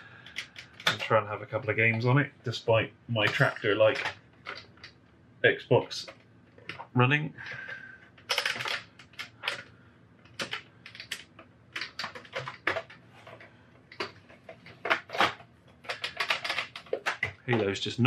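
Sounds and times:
plastic and metal clicks and rattles: 0:00.2 - 0:01.1, 0:03.2 - 0:05.0, 0:08.1 - 0:17.7.

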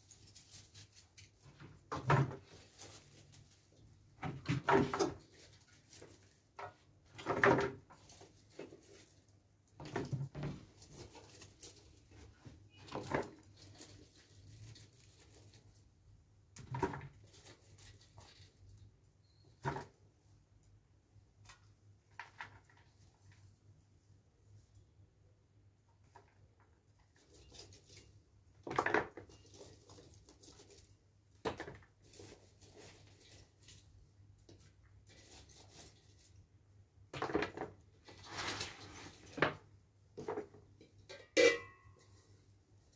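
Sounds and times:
vegetables rustling: 0:00.0 - 0:03.9, 0:04.6 - 0:06.7, 0:10.6 - 0:15.9, 0:32.0 - 0:34.0.

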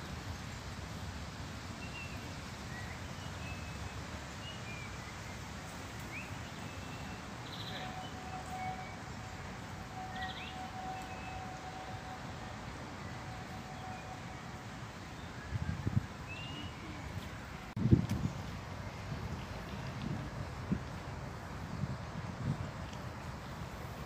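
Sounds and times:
steady faint tone: 0:05.1 - 0:21.8
wind rumble: 0:06.7 - 0:24.0.

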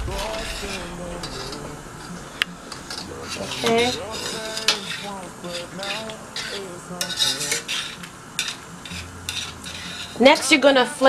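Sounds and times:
spoon scraping a metal pot: 0:00.1 - 0:11.0.

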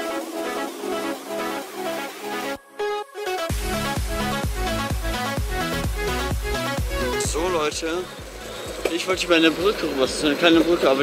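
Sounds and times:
electronic dance music: 0:00.0 - 0:11.0
heavy kick drum and bass: 0:03.5 - 0:10.8.

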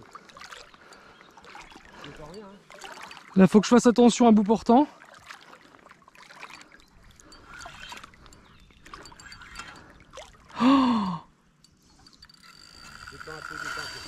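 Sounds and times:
water splashing: 0:00.0 - 0:10.6.

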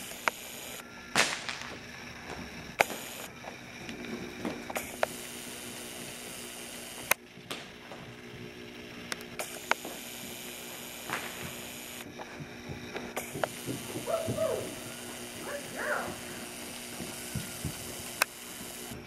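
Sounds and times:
low electrical hum: 0:00.0 - 0:19.0
sharp clicks: 0:02.8 - 0:03.3, 0:04.7 - 0:05.2, 0:07.0 - 0:07.2, 0:09.1 - 0:10.0, 0:18.2 - 0:18.4.

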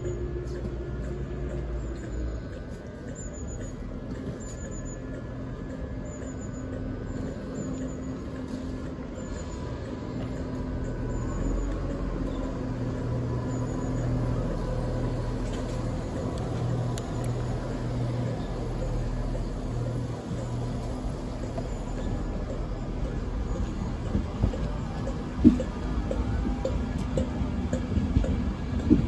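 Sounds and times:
electric train humming: 0:00.0 - 0:29.0.

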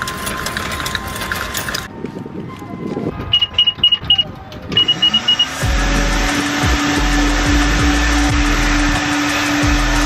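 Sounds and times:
music with pulsing bass beat: 0:04.8 - 0:10.0
vacuum running: 0:04.8 - 0:10.0.

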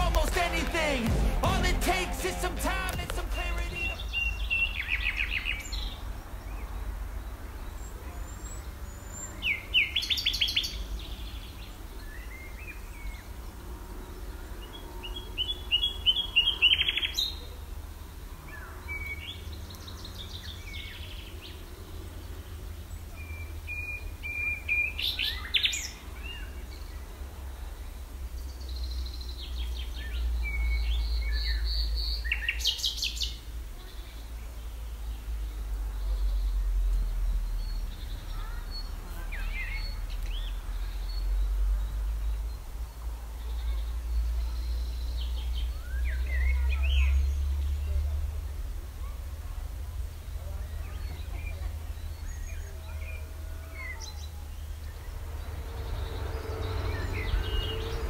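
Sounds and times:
steady low rumble: 0:00.0 - 0:07.0
songbirds chirping: 0:00.0 - 0:58.0.

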